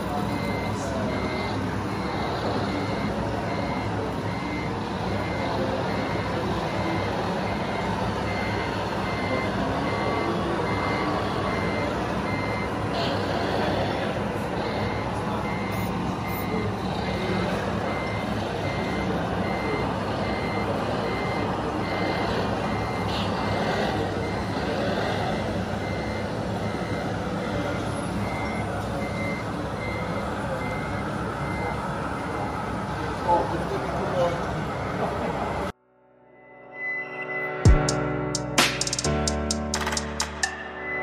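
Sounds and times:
short high reversing beeps: 0.0 - 13.8, 14.6 - 32.5
low engine drone: 0.0 - 41.0.

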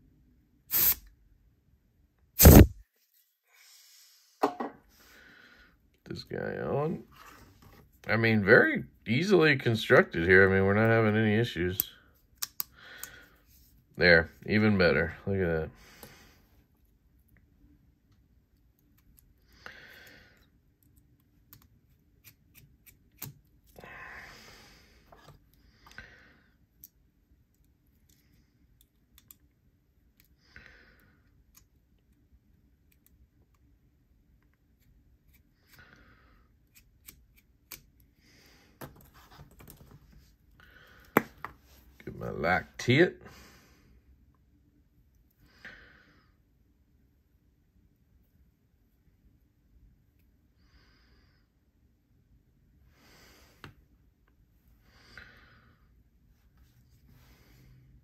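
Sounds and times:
soft rustle of handling: 2.9 - 4.2, 6.9 - 8.2, 56.2 - 57.6
soft breaths: 3.4 - 5.9, 11.9 - 13.9, 15.7 - 16.9, 19.3 - 20.6, 23.7 - 26.8, 40.0 - 42.1, 52.8 - 58.0.

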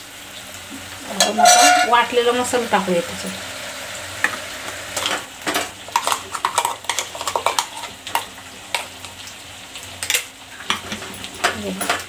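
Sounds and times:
paste sizzling in oil: 0.0 - 10.8
spoon scraping metal pot: 1.2 - 2.0.

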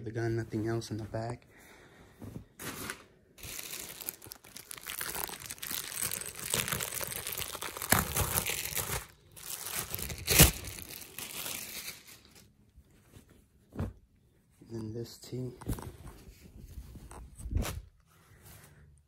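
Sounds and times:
plastic bag crinkling: 3.4 - 12.5.

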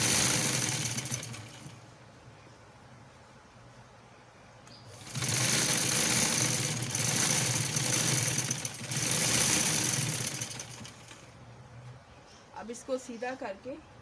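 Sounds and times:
sewing machine rattling: 0.0 - 1.8, 4.9 - 11.3.

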